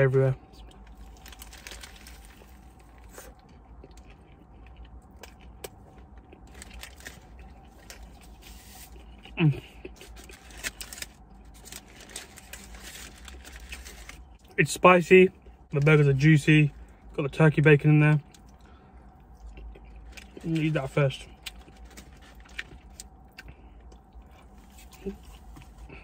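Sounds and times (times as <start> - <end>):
close chewing: 0.5 - 14.5
paper wrapper rustling: 1.0 - 2.9, 6.4 - 9.0, 10.0 - 14.2.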